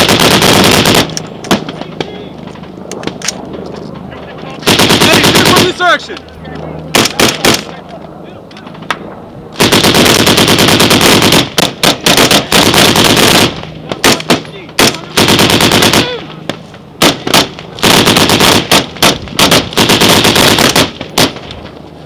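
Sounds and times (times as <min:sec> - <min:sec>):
automatic gunfire: 0:00.0 - 0:01.7, 0:04.6 - 0:05.8, 0:06.9 - 0:07.7, 0:09.6 - 0:16.2, 0:17.0 - 0:21.4.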